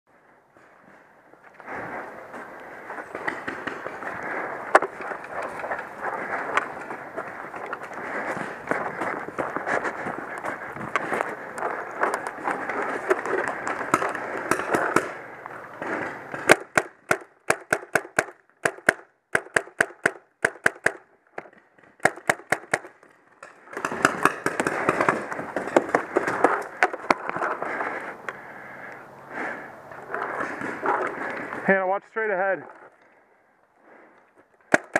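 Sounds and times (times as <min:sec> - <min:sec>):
rustling of running and gear: 0:00.1 - 0:16.9, 0:20.6 - 0:34.9
paintball marker firing: 0:13.3 - 0:15.2, 0:16.3 - 0:27.2, 0:34.7 - 0:34.9.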